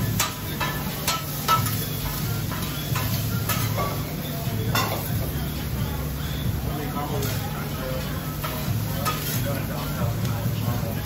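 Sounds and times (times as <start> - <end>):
metal spatula scraping griddle: 0.0 - 5.1
food sizzling on griddle: 0.0 - 11.0.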